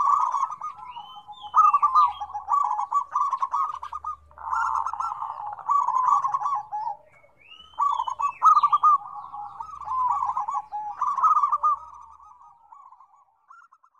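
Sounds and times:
doves cooing: 0:00.0 - 0:13.9.

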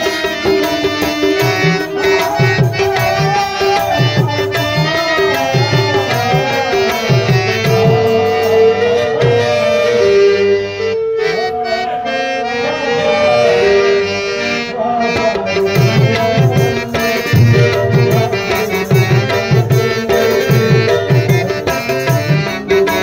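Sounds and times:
tabla drumming: 0:00.0 - 0:10.4, 0:15.1 - 0:23.0
held melody line: 0:00.0 - 0:23.0.

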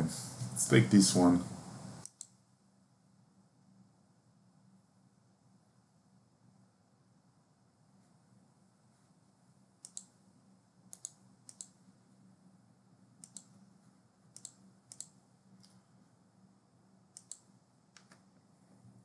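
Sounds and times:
low steady hum: 0:00.0 - 0:19.0
computer mouse clicking: 0:02.0 - 0:02.4, 0:09.8 - 0:10.2, 0:10.9 - 0:11.8, 0:13.2 - 0:13.6, 0:14.3 - 0:15.8, 0:17.1 - 0:18.3.

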